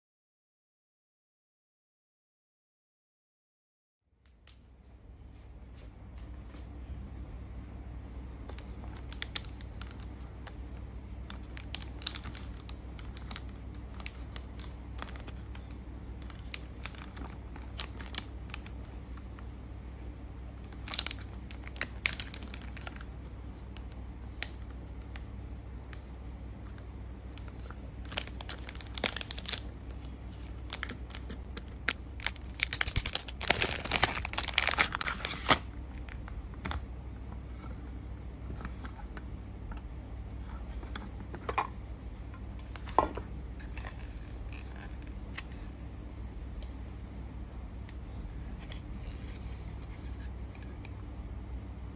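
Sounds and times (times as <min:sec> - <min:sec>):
steady low hum: 0:04.1 - 0:51.9
plastic crinkling: 0:08.4 - 0:10.6, 0:11.2 - 0:19.4, 0:20.6 - 0:25.3, 0:25.9 - 0:36.4
card sleeve rustling: 0:27.4 - 0:35.7.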